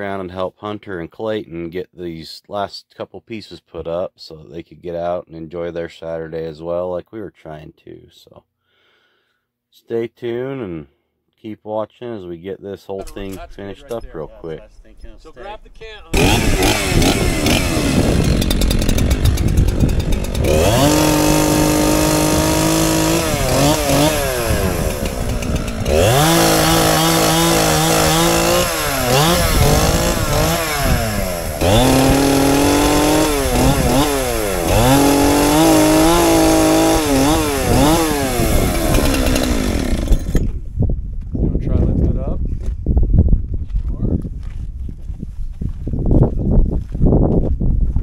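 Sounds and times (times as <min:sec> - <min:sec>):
chainsaw revving: 0:14.2 - 0:40.6.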